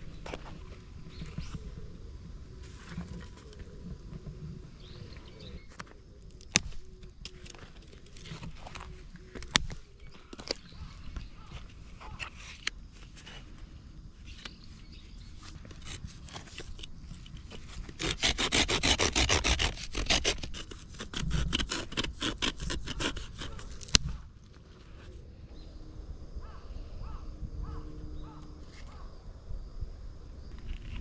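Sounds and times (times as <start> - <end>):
rhythmic scraping of dry wood: 2.6 - 25.5
crows cawing: 26.4 - 28.5.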